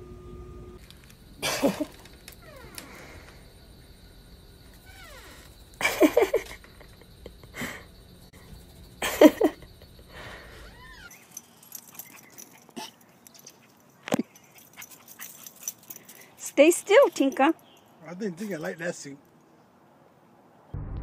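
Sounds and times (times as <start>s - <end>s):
dog whining: 1.8s - 2.8s, 10.5s - 11.2s.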